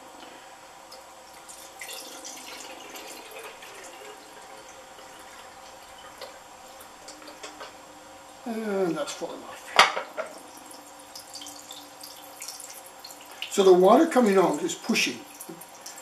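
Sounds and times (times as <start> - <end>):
water running into glass dish: 0.9 - 6.9, 10.2 - 16.0
water pouring into can: 1.3 - 6.1.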